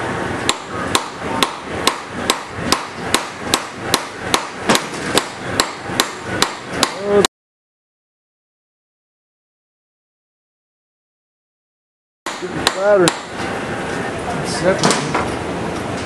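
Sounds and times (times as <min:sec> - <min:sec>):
hammer striking metal drift: 0:00.5 - 0:07.1.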